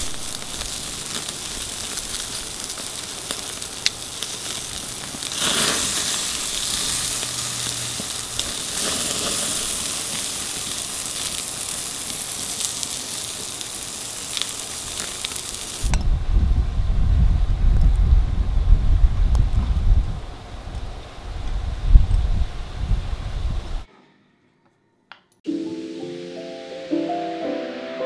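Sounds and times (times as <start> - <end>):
steaks sizzling on a grill: 0.0 - 15.9
wind rumble on microphone: 15.8 - 23.9.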